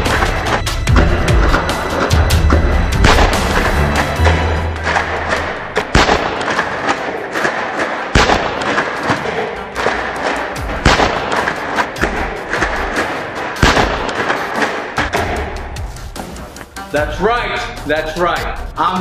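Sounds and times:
loud booming thuds: 0:00.0 - 0:06.6
background music: 0:00.0 - 0:19.0.

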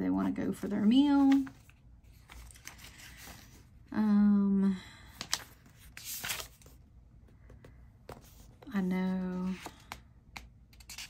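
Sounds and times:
notebook page turning: 0:00.6 - 0:03.6, 0:05.2 - 0:06.8.

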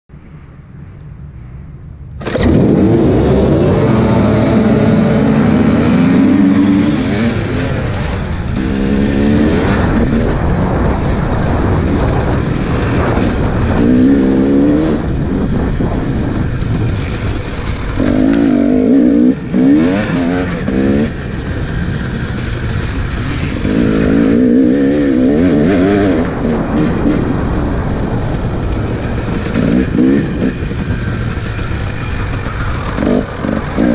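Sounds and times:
dirt bike engines starting: 0:02.1 - 0:08.1
dirt bike engine revving: 0:02.2 - 0:33.9.

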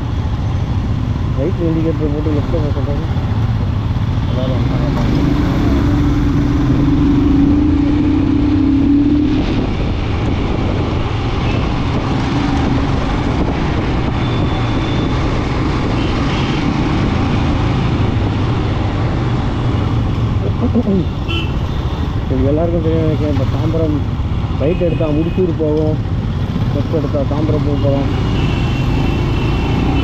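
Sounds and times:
wind noise: 0:05.6 - 0:20.6.

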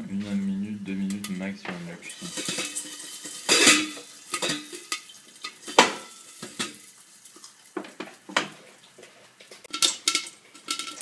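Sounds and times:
popcorn sizzling in oil: 0:02.0 - 0:11.0
pan and lid clattering: 0:02.1 - 0:06.9, 0:09.6 - 0:11.0.

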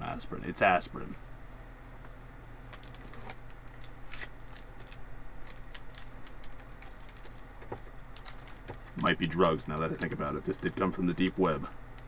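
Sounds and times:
blister pack crinkling and clicking: 0:02.7 - 0:12.0.

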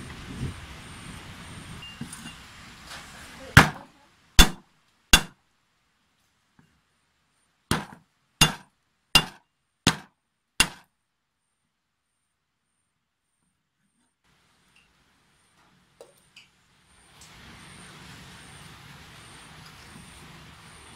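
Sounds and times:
knife blade whacking chopping board: 0:04.4 - 0:04.6, 0:07.7 - 0:08.6, 0:09.2 - 0:10.8.

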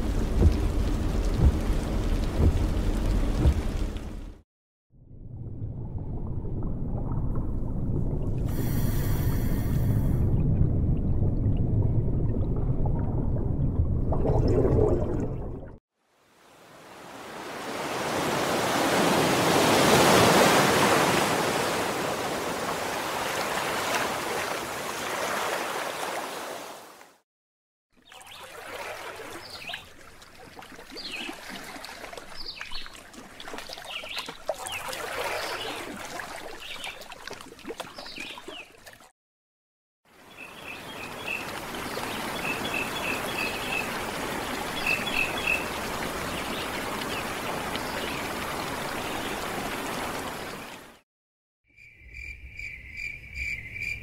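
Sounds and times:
water gently lapping: 0:00.0 - 0:04.4, 0:14.0 - 0:27.2, 0:28.0 - 0:39.1, 0:40.1 - 0:51.0
ocean surf washing on beach: 0:16.8 - 0:26.9
small waterfall pouring: 0:28.3 - 0:38.9.

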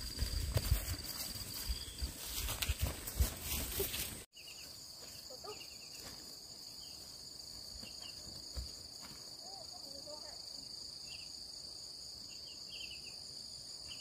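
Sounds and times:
insects droning: 0:00.0 - 0:14.0.

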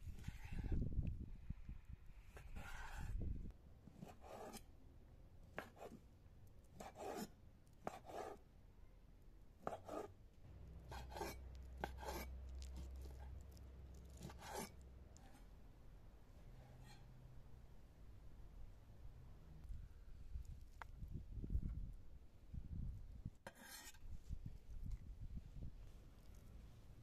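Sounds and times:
knife cutting and scraping: 0:00.0 - 0:00.8, 0:02.3 - 0:03.2, 0:03.9 - 0:04.7, 0:05.5 - 0:06.0, 0:06.8 - 0:08.4, 0:09.6 - 0:10.1, 0:10.8 - 0:15.5, 0:16.6 - 0:17.1, 0:23.4 - 0:24.1.

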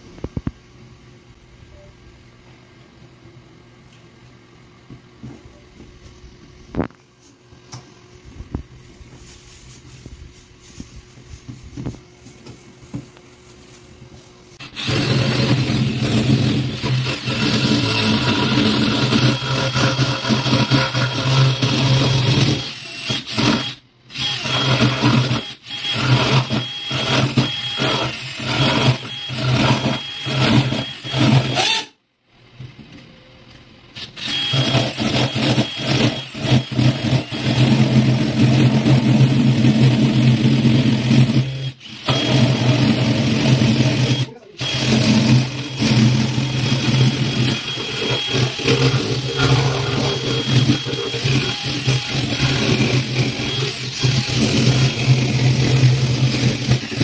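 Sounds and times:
cordless drill boring into wood: 0:14.6 - 0:32.0, 0:34.0 - 0:57.0.

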